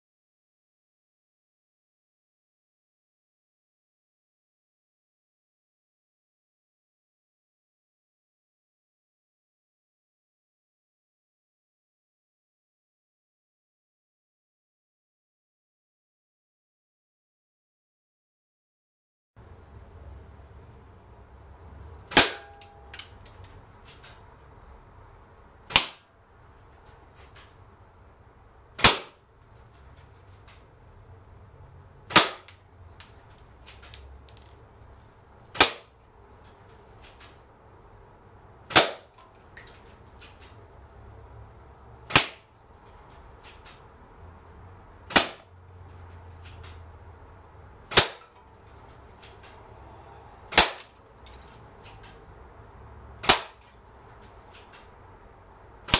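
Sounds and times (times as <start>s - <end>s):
airsoft rifle cracks: 25.7s - 26.0s, 28.8s - 29.2s, 32.1s - 34.6s, 35.5s - 35.9s, 38.7s - 40.6s, 42.1s - 42.5s, 45.1s - 45.5s, 47.9s - 48.4s, 50.5s - 52.2s, 53.2s - 53.7s.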